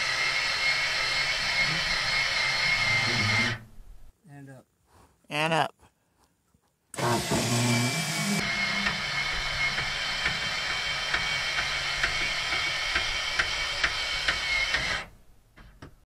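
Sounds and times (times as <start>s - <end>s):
jack motor running: 0.0s - 3.6s, 7.0s - 15.1s.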